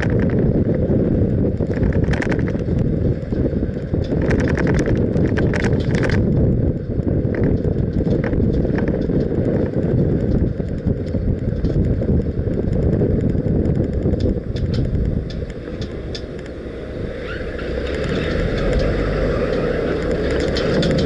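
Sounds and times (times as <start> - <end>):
wind buffeting microphone: 0.0 - 21.0
clicking rattle: 17.8 - 21.0.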